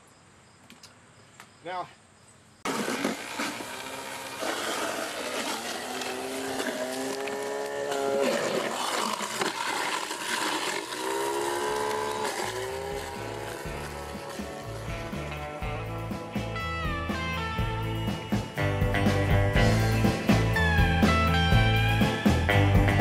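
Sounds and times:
garbage disposal grinding fruit: 0:02.7 - 0:16.0.

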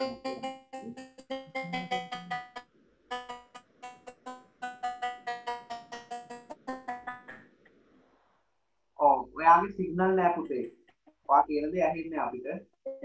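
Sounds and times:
keyboard playing quick tune: 0:00.0 - 0:07.2.

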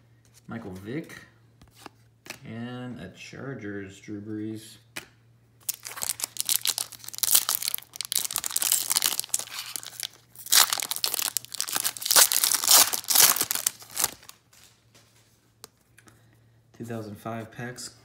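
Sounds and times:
foil wrapper crinkling and tearing: 0:05.6 - 0:14.8.

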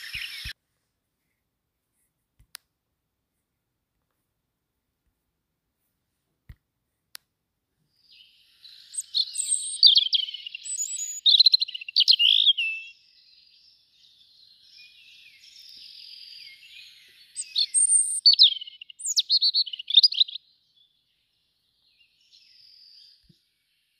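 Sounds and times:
songbird twittering: 0:00.0 - 0:00.5, 0:08.0 - 0:23.9.

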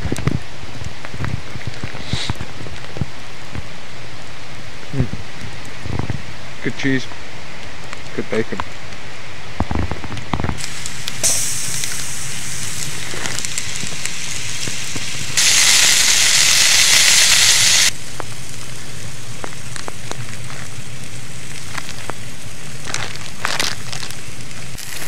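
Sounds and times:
campfire crackling: 0:00.0 - 0:25.0
sausages sizzling in a pan: 0:02.0 - 0:02.4, 0:10.6 - 0:25.0.

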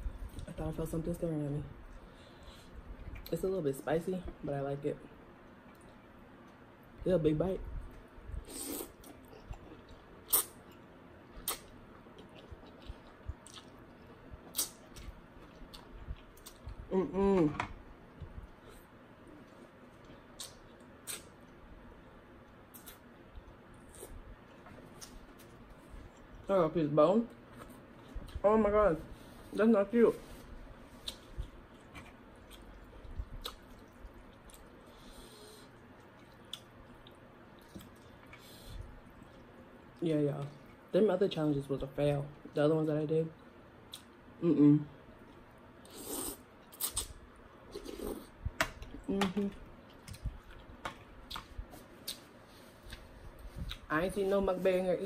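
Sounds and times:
breathing: 0:02.0 - 0:02.8, 0:34.9 - 0:35.7
person chewing noodles: 0:08.4 - 0:16.9, 0:30.9 - 0:39.5, 0:45.2 - 0:48.4, 0:49.8 - 0:53.9
wet mouth sounds: 0:10.3 - 0:10.6.

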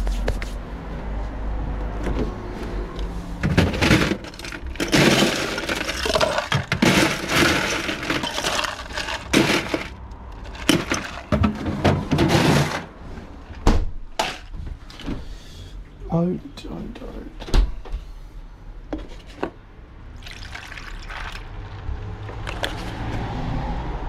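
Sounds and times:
ice cubes clattering: 0:03.5 - 0:11.6, 0:20.2 - 0:21.4, 0:22.4 - 0:22.9.

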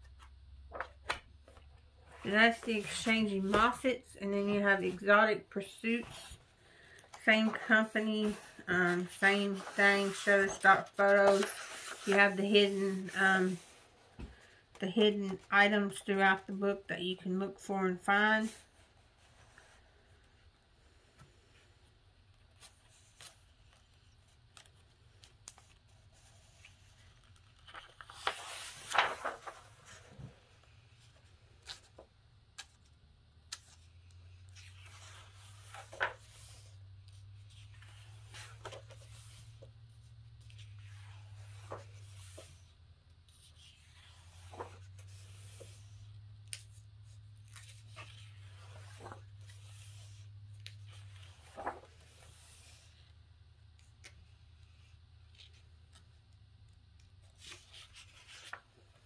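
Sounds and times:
book pages flipping: 0:00.1 - 0:05.1, 0:05.8 - 0:14.6, 0:22.5 - 0:42.7, 0:43.3 - 0:53.0, 0:56.9 - 0:59.0.

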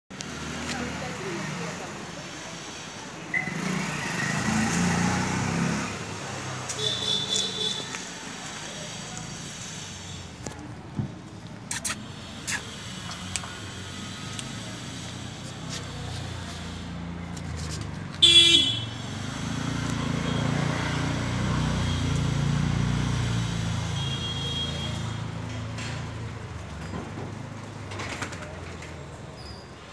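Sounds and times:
vehicle engine rumbling: 0:00.1 - 0:29.9
vehicle horn toot: 0:06.8 - 0:07.9, 0:18.2 - 0:19.0, 0:23.9 - 0:25.2.

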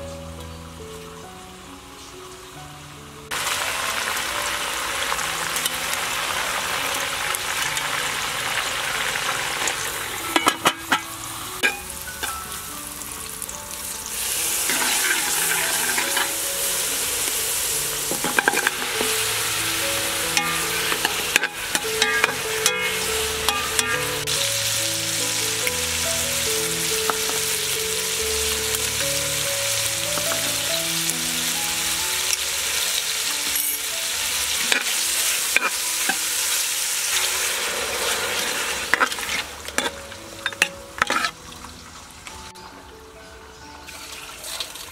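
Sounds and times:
soft background music: 0:00.0 - 0:44.9
meat sizzling in pot: 0:00.2 - 0:42.6
metal spoon scraping pot: 0:14.7 - 0:16.4, 0:18.1 - 0:19.1, 0:20.4 - 0:24.1, 0:38.9 - 0:41.4.

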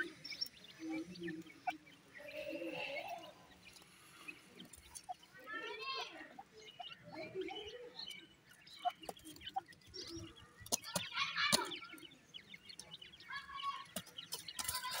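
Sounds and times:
chicks peeping and trilling: 0:00.0 - 0:15.0
pecking taps on ground: 0:08.5 - 0:13.0, 0:13.6 - 0:15.0.

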